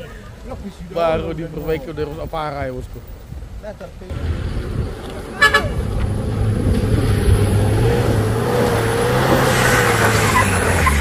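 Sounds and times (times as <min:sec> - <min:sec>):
diesel truck engine droning: 0:04.1 - 0:11.0.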